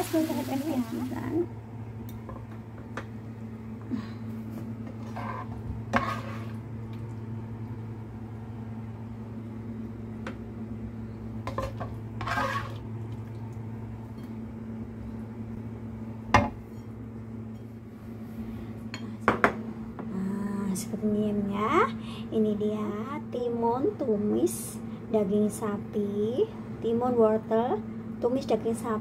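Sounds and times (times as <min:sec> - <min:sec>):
steady low hum: 0:00.0 - 0:29.0
spatula scraping a wok: 0:04.9 - 0:06.6, 0:11.5 - 0:12.8.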